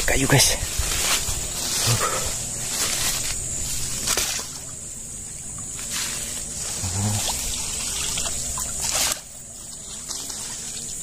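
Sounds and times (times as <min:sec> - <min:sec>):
steady high-pitched hiss: 0:00.0 - 0:11.0
stick splashing through creek water: 0:04.0 - 0:04.7, 0:07.1 - 0:09.3.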